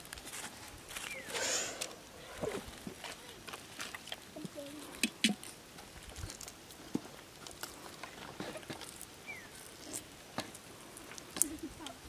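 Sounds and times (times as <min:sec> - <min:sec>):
eggshells cracking and peeling: 0:05.0 - 0:12.0.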